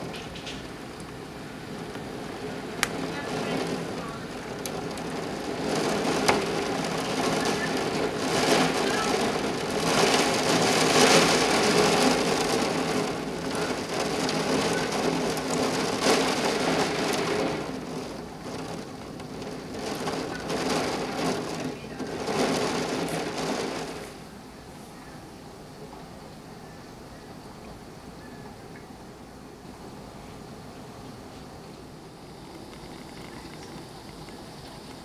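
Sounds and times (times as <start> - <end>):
heavy rain: 0.0 - 25.6, 29.0 - 35.0
gusts of wind: 0.0 - 26.5.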